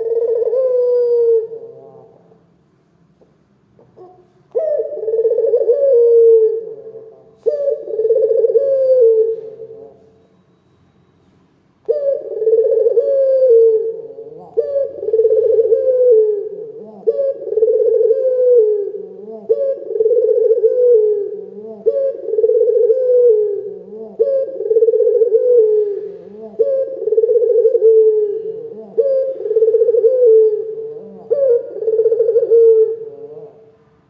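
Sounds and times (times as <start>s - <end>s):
collared dove cooing: 0.0s - 2.5s, 3.8s - 10.3s, 11.8s - 33.8s.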